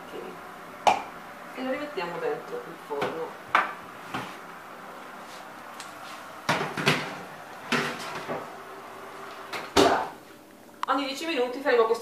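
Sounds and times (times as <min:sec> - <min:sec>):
baking tray scraping on rack: 0:05.2 - 0:08.6
oven door shutting: 0:06.4 - 0:10.2.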